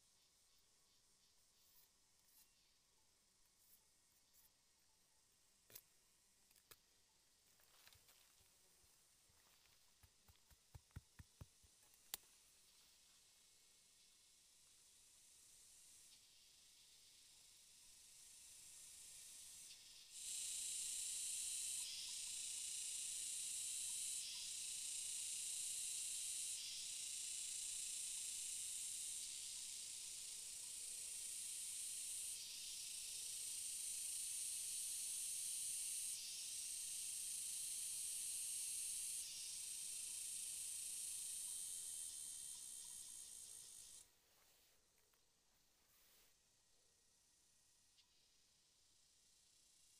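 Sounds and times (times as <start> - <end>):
high-pitched insect buzzing: 16.0 - 44.0.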